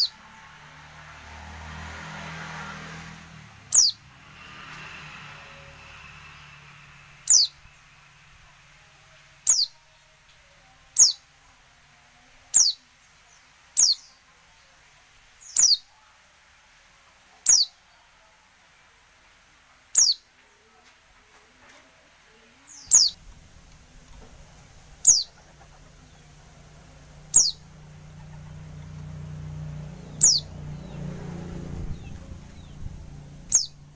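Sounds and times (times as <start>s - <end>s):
bird call notes: 27.3s - 28.6s, 33.5s - 33.8s.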